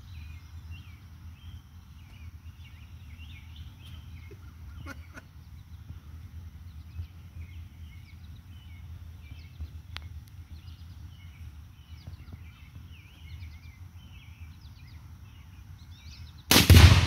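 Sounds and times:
low background rumble: 0:00.0 - 0:17.0
songbirds chirping: 0:00.0 - 0:17.0
faint click: 0:09.9 - 0:10.4.

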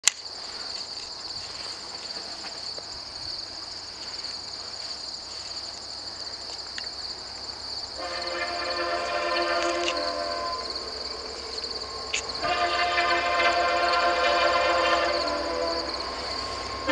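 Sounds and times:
crickets chirping: 0:00.0 - 0:16.9
distant train horn chord: 0:08.0 - 0:16.9.

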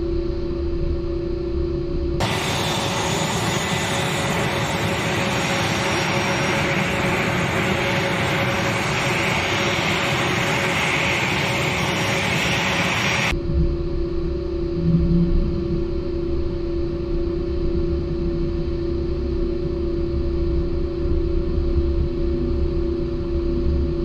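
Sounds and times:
jet engines whining: 0:02.2 - 0:13.4.

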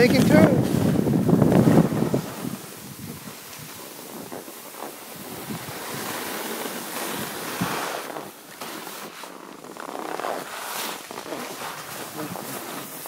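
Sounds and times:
wind rushing on microphone: 0:00.0 - 0:06.3
skis scraping over snow: 0:00.0 - 0:13.0.

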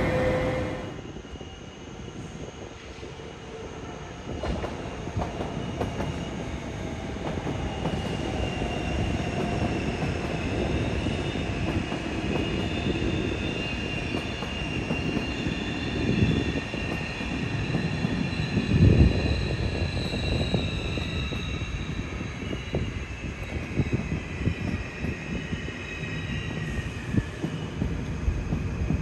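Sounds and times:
train rumbling past: 0:00.0 - 0:01.4.

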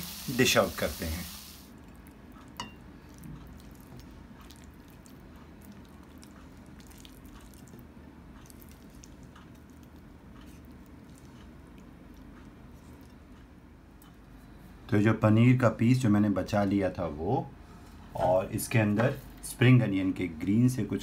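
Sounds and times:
steady low hum: 0:00.1 - 0:21.0
wet squishing of food: 0:01.7 - 0:14.2.

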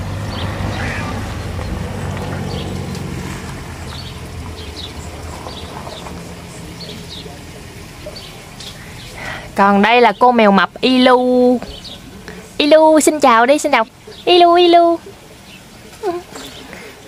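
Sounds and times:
low engine drone: 0:00.0 - 0:12.6
small birds chirping: 0:00.0 - 0:17.0.

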